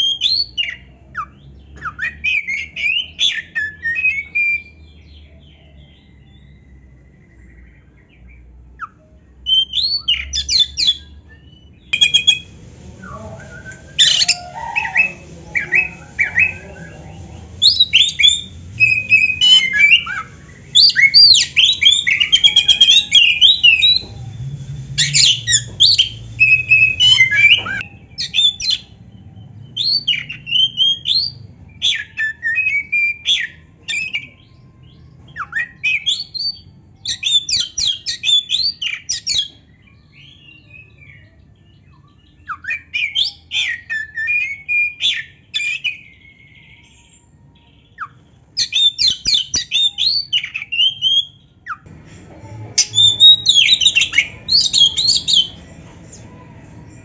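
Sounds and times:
bird singing whistles and squawks: 8.8 - 12.5, 17.6 - 24.1, 25.0 - 28.9, 47.9 - 51.9, 52.8 - 55.6.

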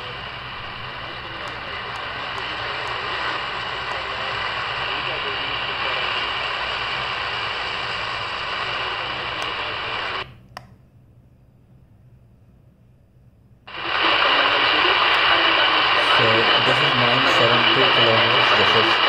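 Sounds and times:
radio static hissing: 0.0 - 10.4, 13.7 - 19.0
radio click: 0.7 - 6.9, 8.0 - 10.7, 13.7 - 19.0.

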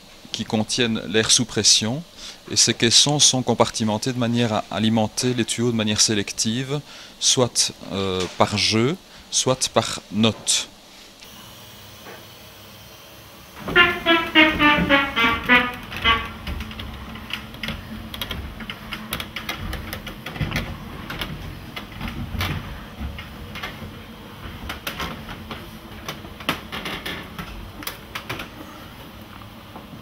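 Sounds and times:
climbing wooden ladder knocks: 13.6 - 27.4.

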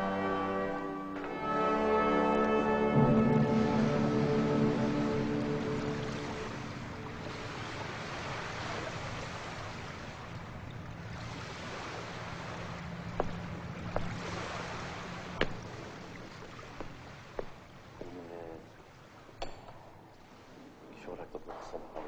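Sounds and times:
sharp knocks: 15.4 - 15.8, 19.4 - 19.9.

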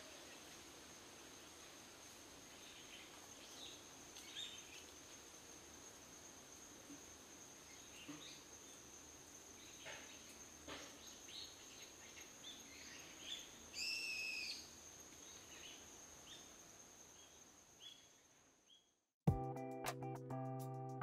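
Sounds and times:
insect drone: 0.0 - 18.9
bird chirps: 11.0 - 14.7.

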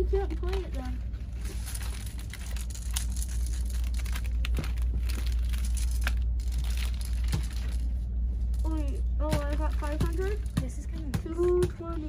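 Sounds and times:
items rustling and crinkling: 0.0 - 12.0
low hum: 0.0 - 12.0.

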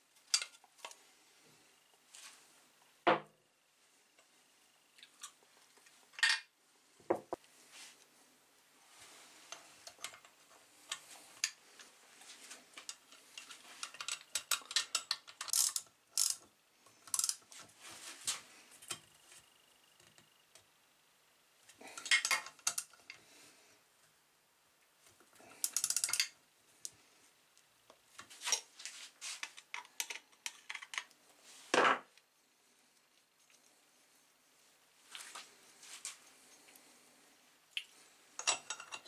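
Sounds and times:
light metallic clicks and clinks: 37.8 - 39.0.

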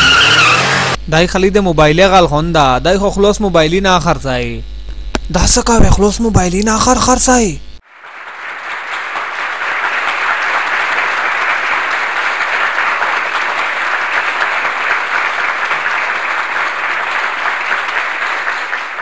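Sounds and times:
crowd applause: 7.8 - 19.0.

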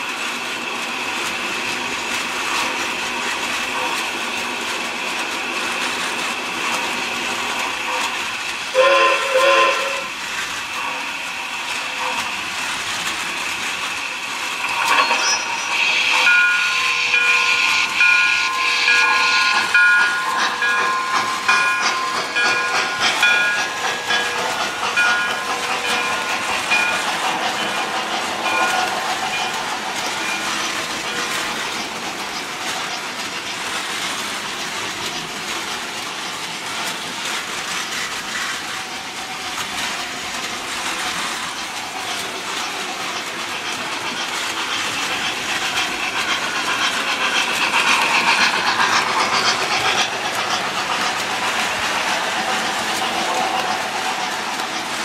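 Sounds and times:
toy train running on track: 0.0 - 55.0
toy train whistle blasts: 8.7 - 10.1, 14.9 - 20.8.

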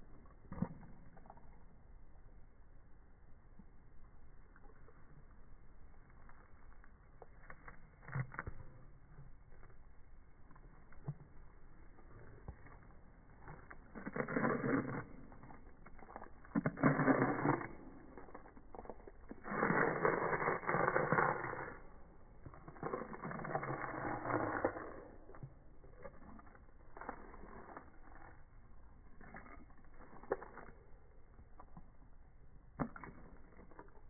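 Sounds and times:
slowed dog chewing rasp: 10.5 - 32.1.

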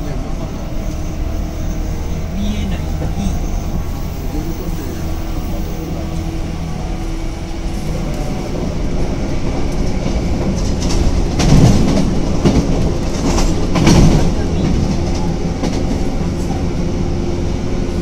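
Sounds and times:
train running rumble: 0.0 - 18.0
wheels clattering over rail joints: 9.4 - 16.2.

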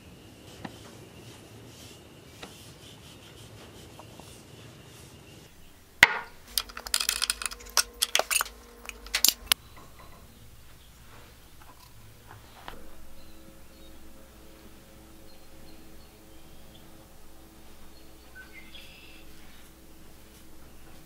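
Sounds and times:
faint steady high tone: 5.5 - 21.0
lid prying metallic clanks: 6.0 - 9.6.

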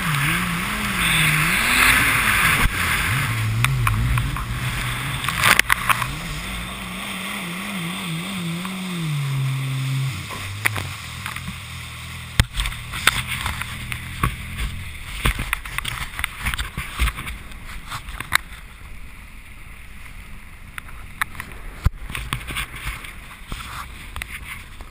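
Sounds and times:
water splashing against hull: 0.0 - 19.0
watercraft engine running: 0.0 - 24.9.

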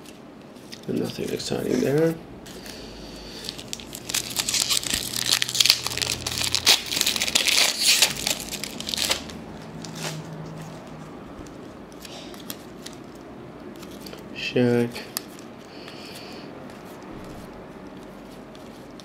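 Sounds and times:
cards rustling: 0.0 - 14.3, 15.1 - 19.0
wrapper crinkling: 3.4 - 10.7.

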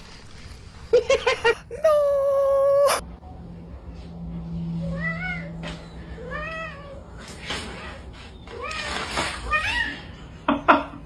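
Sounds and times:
person shouting: 1.7 - 3.0.

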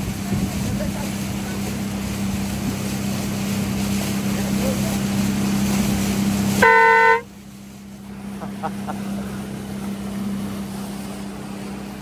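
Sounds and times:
outboard motor humming: 0.0 - 12.0
water noise: 0.0 - 12.0
boat horn toot: 6.4 - 7.4.

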